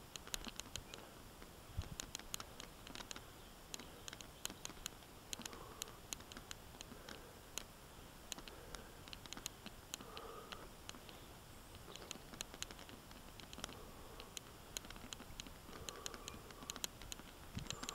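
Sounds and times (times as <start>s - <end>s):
faint rustle: 0.0s - 17.9s
bike clicks and rattles: 11.9s - 17.9s.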